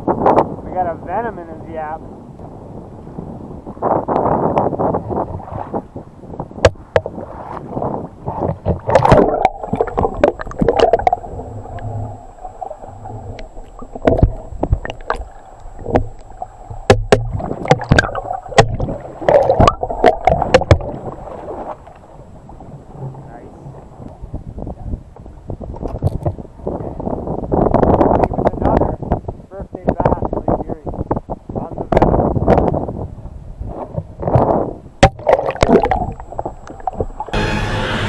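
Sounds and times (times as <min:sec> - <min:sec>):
muffled water sloshing: 0:03.6 - 0:28.8, 0:33.6 - 0:37.4
water splash: 0:06.6 - 0:22.2, 0:35.0 - 0:38.0
sharp clicks and knocks: 0:13.3 - 0:20.9.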